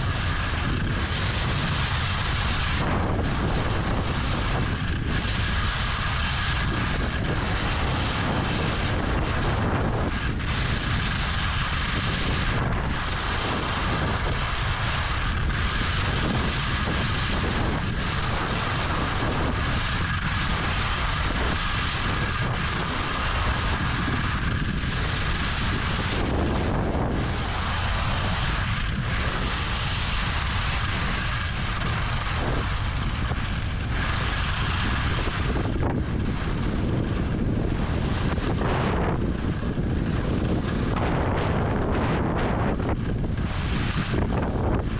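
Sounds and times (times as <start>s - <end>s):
skis hissing over snow: 0.0s - 44.9s
wind rushing over microphone: 0.0s - 44.9s.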